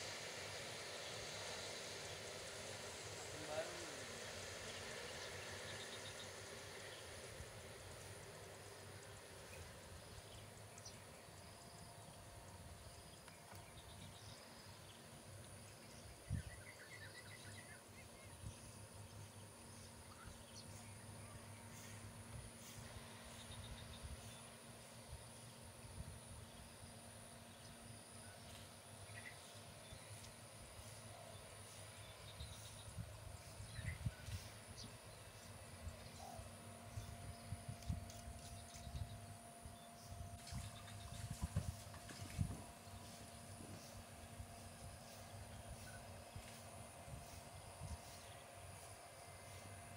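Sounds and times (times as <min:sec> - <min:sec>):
distant jet engines: 0:00.0 - 0:49.9
low steady rumble: 0:00.0 - 0:49.9
bird chirping: 0:29.0 - 0:41.7
wind buffeting microphone: 0:40.2 - 0:42.8.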